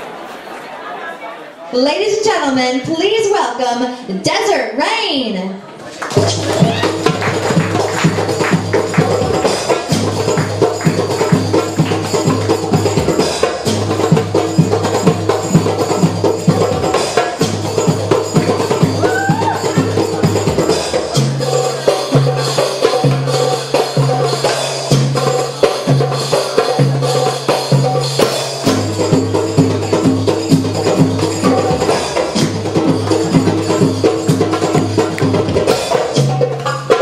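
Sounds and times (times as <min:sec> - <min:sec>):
hand drum belly dance rhythm: 0:06.0 - 0:37.0.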